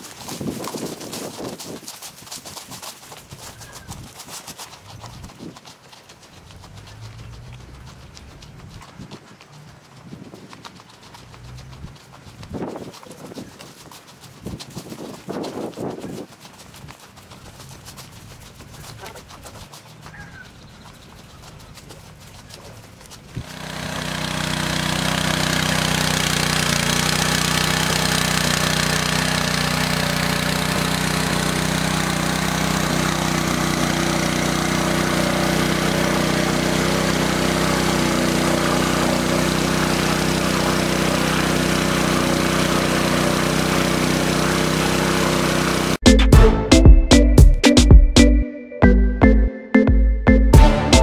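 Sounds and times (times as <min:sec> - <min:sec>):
engine water pump running: 0:06.1 - 0:46.5.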